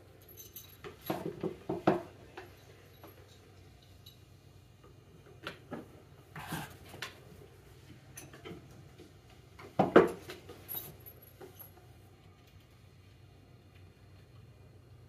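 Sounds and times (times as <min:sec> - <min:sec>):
cable handling knocks and rustles: 0:00.8 - 0:02.5, 0:09.6 - 0:11.6.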